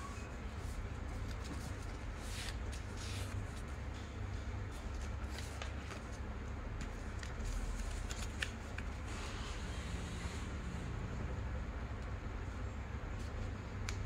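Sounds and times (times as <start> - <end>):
paper rustling and crackling: 0.6 - 3.9, 4.7 - 9.1.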